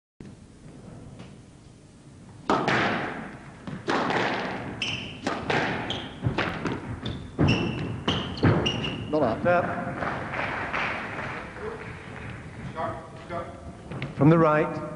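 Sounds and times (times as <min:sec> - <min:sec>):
squash ball hits: 0:02.4 - 0:12.7
shoe squeaks on court floor: 0:04.7 - 0:09.2.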